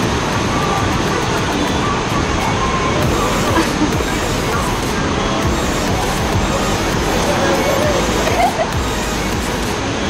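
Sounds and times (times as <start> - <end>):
loud rushing water: 0.0 - 10.0
music playing: 0.0 - 10.0.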